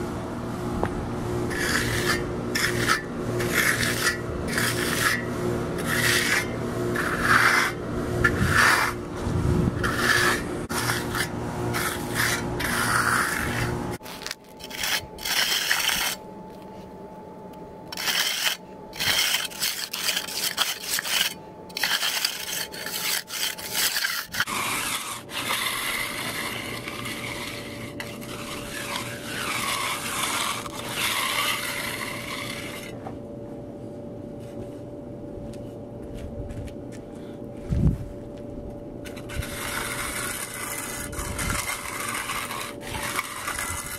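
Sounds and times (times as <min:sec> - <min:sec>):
trowel scraping wet concrete: 0:01.5 - 0:16.3, 0:17.9 - 0:33.0, 0:39.0 - 0:43.9.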